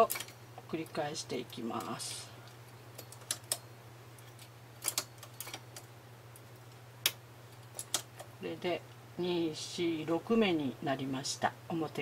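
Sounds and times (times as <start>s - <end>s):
steady low hum: 0.0s - 12.0s
knitting machine needle clicks: 4.2s - 8.3s.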